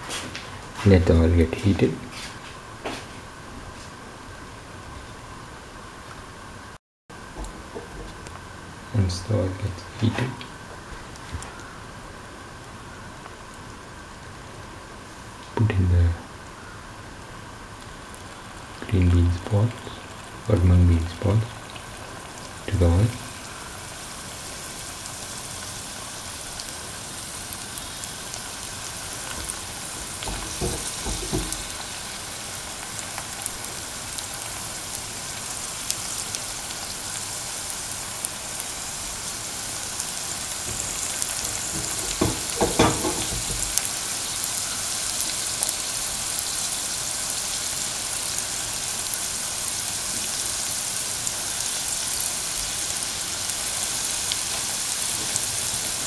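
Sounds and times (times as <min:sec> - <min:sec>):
dough balls sizzling in oil: 0:16.2 - 0:56.0.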